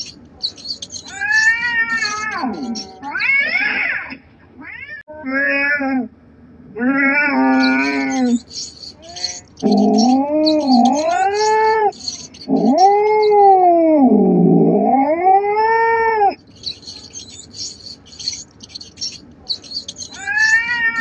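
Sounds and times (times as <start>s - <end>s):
cat yowling: 0.0s - 6.0s, 6.8s - 21.0s
short high chirps: 7.7s - 13.3s.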